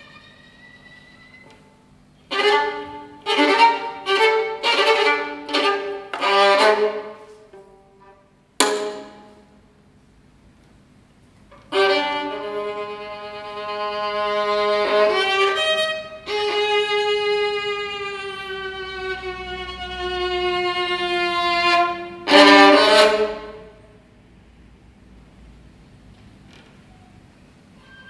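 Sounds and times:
solo violin playing long notes: 2.3 - 8.2, 11.7 - 23.8.

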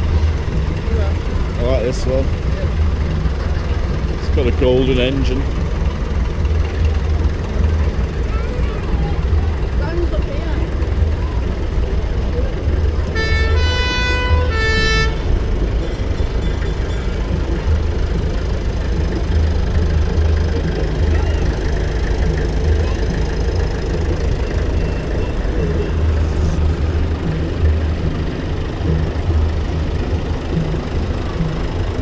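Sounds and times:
tractor engines rumbling: 0.0 - 32.0
two-note horn toot: 13.1 - 15.4.

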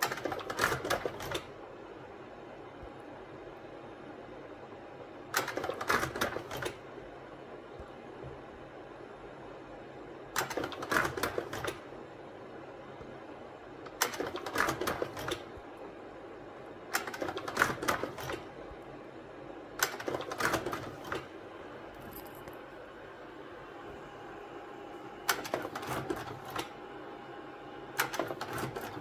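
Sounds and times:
steady low hum: 21.1 - 29.0.

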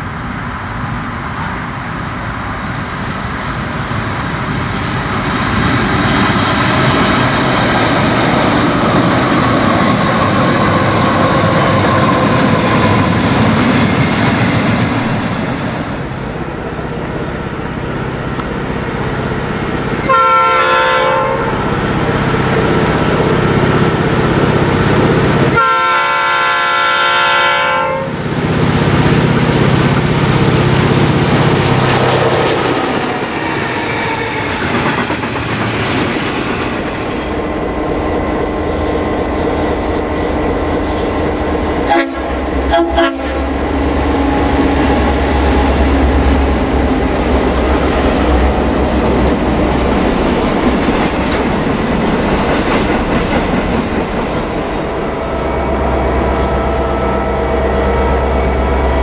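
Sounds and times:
freight train rumbling past: 0.0 - 59.0
deep engine drone: 15.9 - 20.3, 37.1 - 59.0
locomotive air horn: 20.0 - 21.8, 25.5 - 28.2, 41.8 - 43.7.

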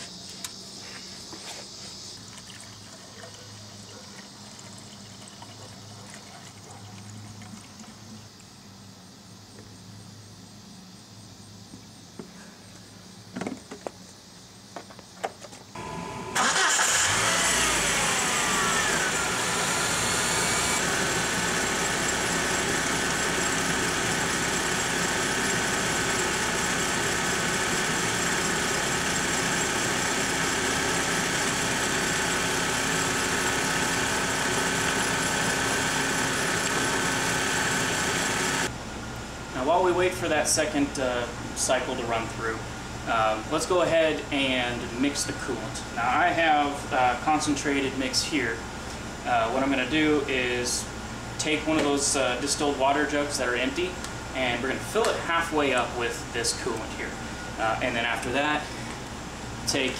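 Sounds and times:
car engine starting and idling: 15.8 - 38.8.

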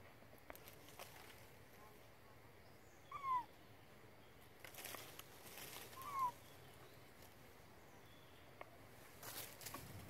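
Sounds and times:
faint rustling: 4.6 - 7.6, 8.9 - 10.0.

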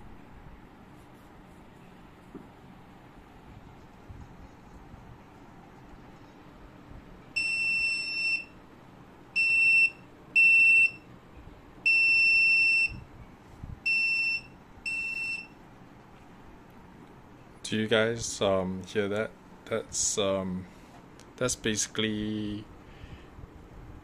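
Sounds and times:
high beeps: 7.4 - 8.5.

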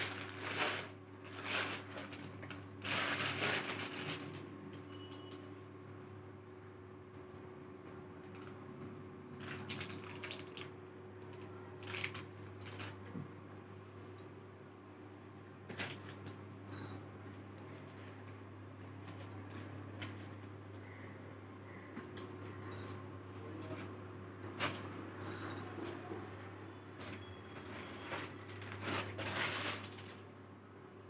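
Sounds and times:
fabric and plastic wrapping handled: 0.0 - 4.4, 11.8 - 13.0, 27.0 - 30.2
steady low hum: 10.6 - 31.0
bangles clinking and jingling: 22.4 - 23.0, 24.4 - 25.8.

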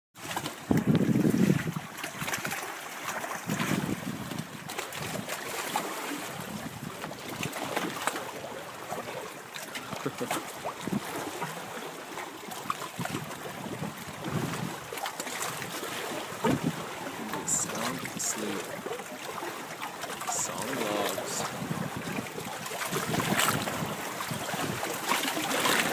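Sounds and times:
wind buffeting microphone: 0.5 - 2.6, 3.3 - 5.4, 10.0 - 11.8, 12.9 - 18.2, 21.4 - 25.9
hiss of wind and sea: 3.4 - 25.9.

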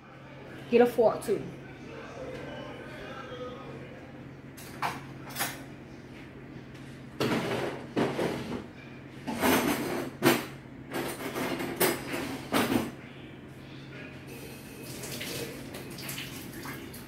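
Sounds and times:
metal utensils and dishes clattering: 9.3 - 12.9.

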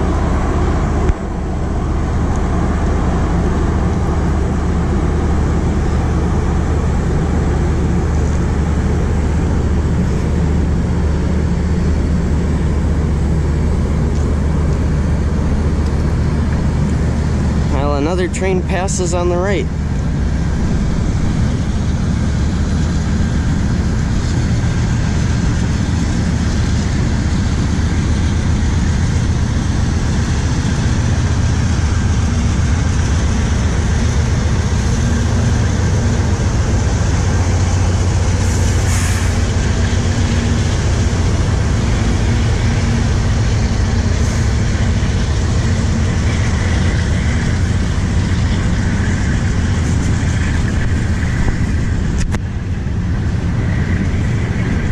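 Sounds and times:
freight train rumbling past: 0.0 - 54.9
brief hiss: 38.8 - 39.4.

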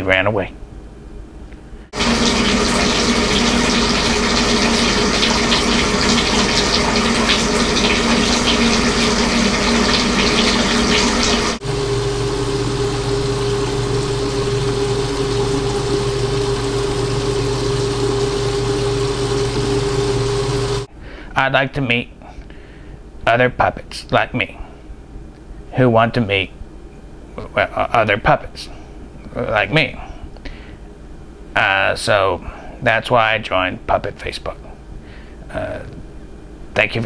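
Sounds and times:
low hum: 1.5 - 20.9
water pouring into bathtub: 2.0 - 20.9.

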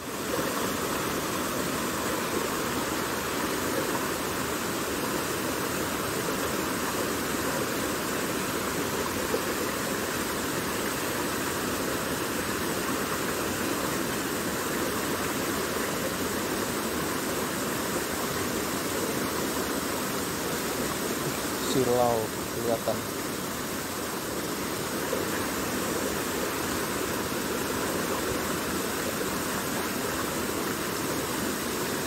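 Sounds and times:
stream rushing over rocks: 0.0 - 32.0.

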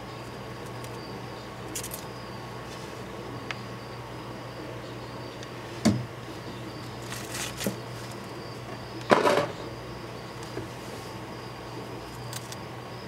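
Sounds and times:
faint steady hum: 0.0 - 13.0
scraping rustle: 7.0 - 8.2.

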